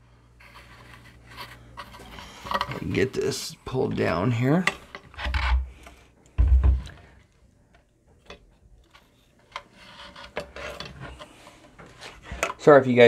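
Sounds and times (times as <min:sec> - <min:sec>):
dull thumps against cabinet: 0:06.4 - 0:07.0.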